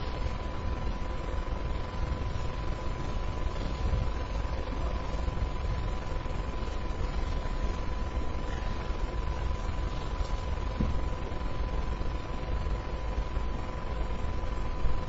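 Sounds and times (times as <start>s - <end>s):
broadcast background hiss: 0.0s - 15.0s
thin constant whine: 0.0s - 15.0s.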